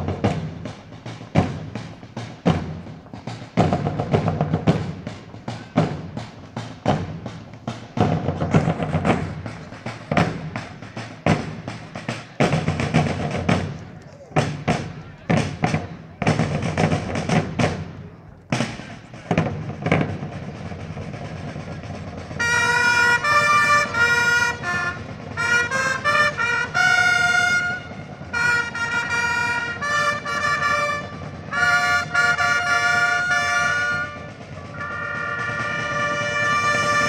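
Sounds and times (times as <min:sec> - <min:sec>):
drum strokes: 0:00.0 - 0:37.0
herald trumpet fanfare: 0:22.3 - 0:37.0.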